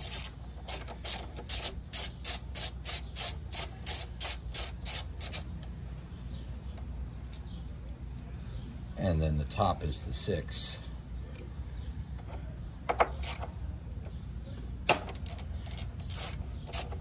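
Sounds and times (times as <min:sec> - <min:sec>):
ratchet driver clicking: 0:00.0 - 0:05.7, 0:13.0 - 0:13.5, 0:14.9 - 0:17.0.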